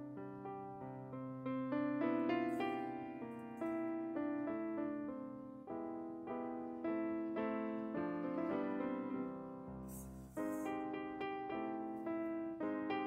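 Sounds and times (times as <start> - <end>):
piano music: 0.0 - 13.0
short noisy hiss: 9.8 - 10.9.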